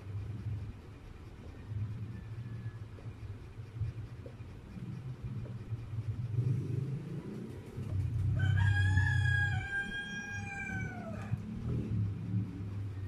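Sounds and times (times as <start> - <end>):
steady low rumble: 0.0 - 13.0
rooster crowing: 8.4 - 11.5.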